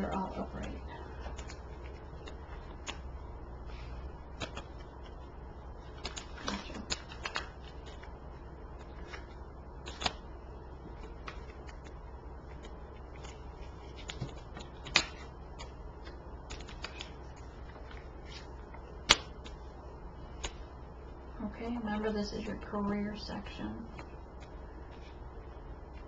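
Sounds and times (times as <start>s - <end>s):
low steady hum: 0.0s - 26.0s
cards snapping and tapping: 1.2s - 3.1s, 4.3s - 5.2s, 6.0s - 8.1s, 8.8s - 10.2s, 10.9s - 18.4s, 19.0s - 19.6s.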